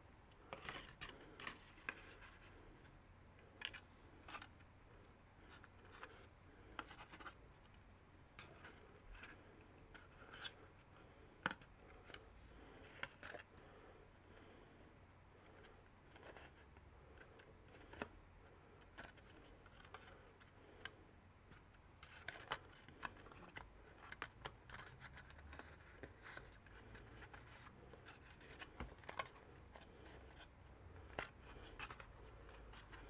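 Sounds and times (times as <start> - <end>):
card rustling and clicking: 18.8 - 33.0.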